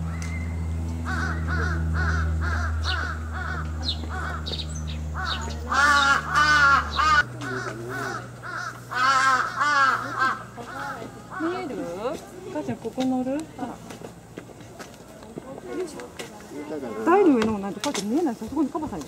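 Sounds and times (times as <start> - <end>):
steady low hum: 0.0 - 14.8
crows cawing: 1.0 - 12.0.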